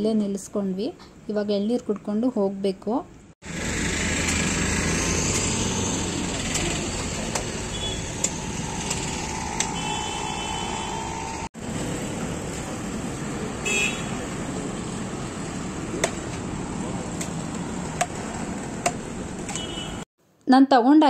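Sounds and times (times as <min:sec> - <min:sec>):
passing motorbikes and vehicles: 0:03.4 - 0:20.1
vehicle horn tooting: 0:07.7 - 0:08.5, 0:09.6 - 0:11.5, 0:13.6 - 0:14.2, 0:19.5 - 0:20.1.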